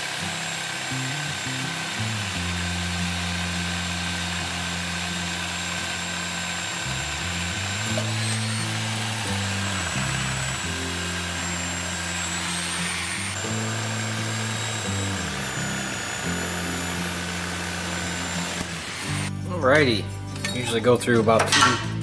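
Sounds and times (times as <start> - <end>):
background music with bass line: 13.4 - 22.0.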